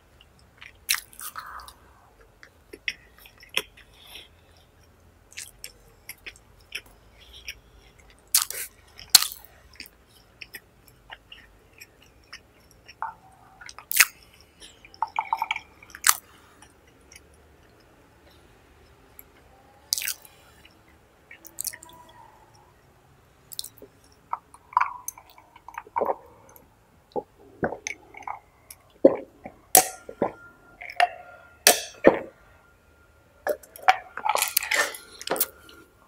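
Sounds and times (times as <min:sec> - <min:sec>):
man chewing: 0:00.2 - 0:17.9, 0:18.8 - 0:21.9, 0:33.6 - 0:35.9
man gulping drink: 0:24.3 - 0:30.4.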